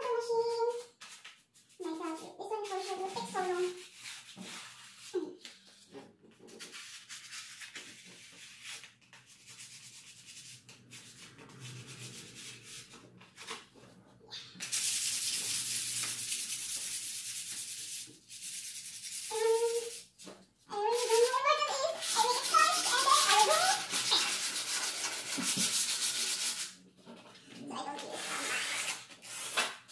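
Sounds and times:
sandpaper rubbing on wood: 14.6 - 20.2, 20.8 - 26.7.

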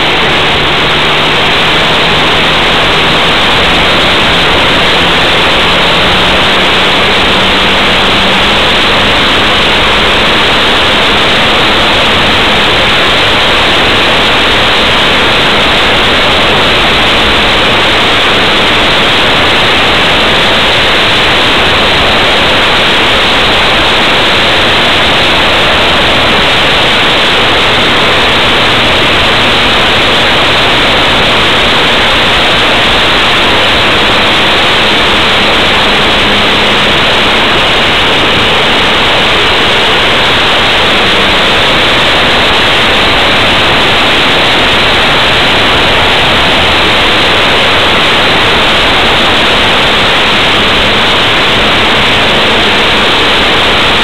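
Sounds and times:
model aircraft engine drone: 0.0 - 54.0
wind rushing over camera: 0.0 - 54.0.

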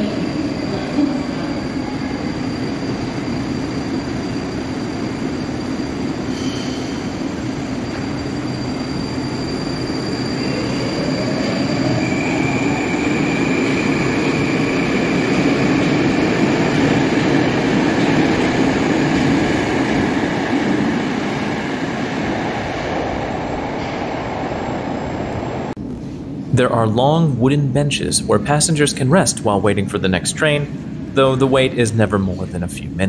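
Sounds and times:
train wheels rumbling on rail: 0.0 - 26.4.

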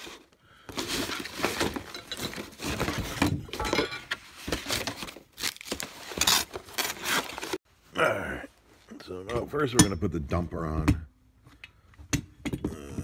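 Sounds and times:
paper and cardboard rustling: 0.0 - 7.6.

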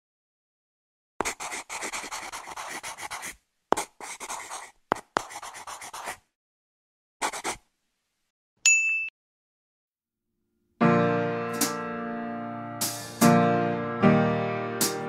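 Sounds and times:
pencil scratching on paper: 1.2 - 6.3, 7.2 - 7.6.

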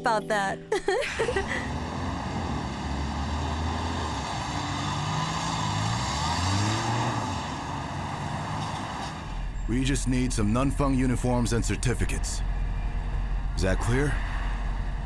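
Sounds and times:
passing cars: 1.1 - 15.0.

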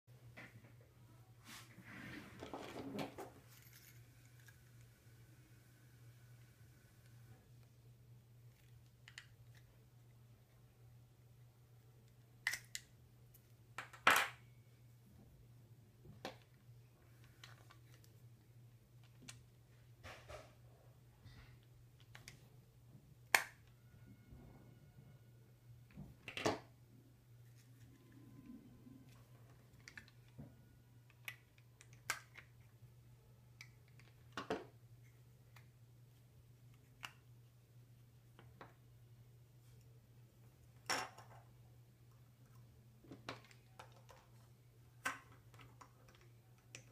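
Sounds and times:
faint low hum: 0.1 - 46.9
keys clinking on tabletop: 3.3 - 4.7.

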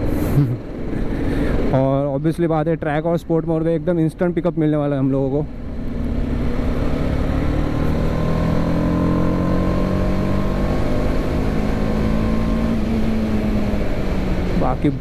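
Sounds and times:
motorcycle engine accelerating: 5.1 - 15.0.

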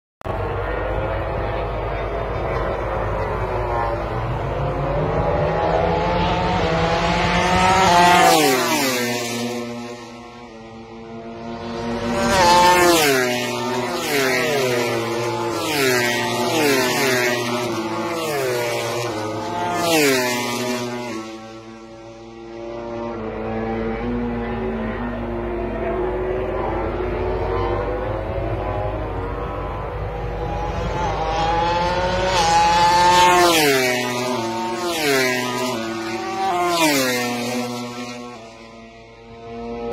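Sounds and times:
racing motorcycles passing at full throttle: 0.3 - 39.9.

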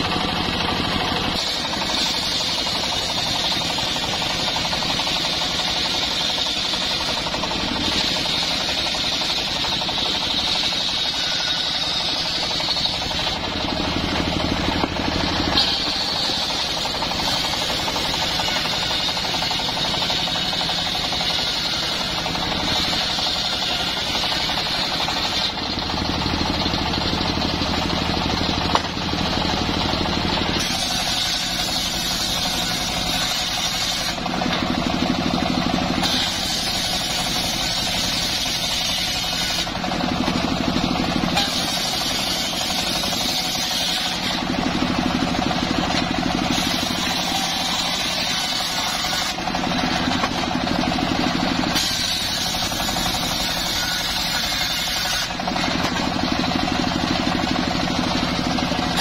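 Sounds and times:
circular saw ripping log: 1.2 - 25.6, 28.6 - 56.9, 58.8 - 59.0.

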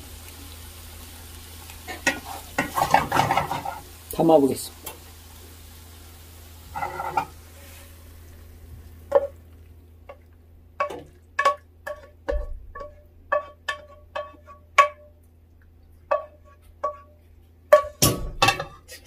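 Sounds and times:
wooden spatula clinking on pan: 10.8 - 15.1, 16.1 - 17.1.

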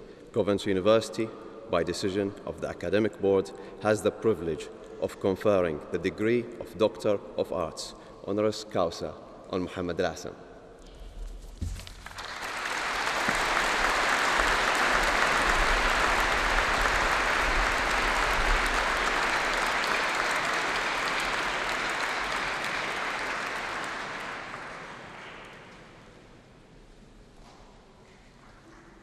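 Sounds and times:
audience applauding: 11.8 - 26.0.

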